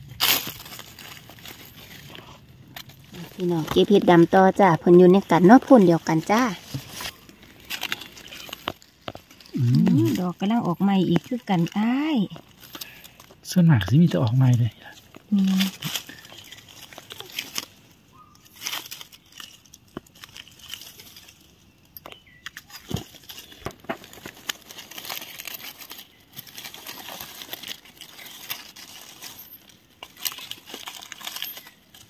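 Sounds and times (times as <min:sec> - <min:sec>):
dry leaves rustling: 0:00.0 - 0:32.0.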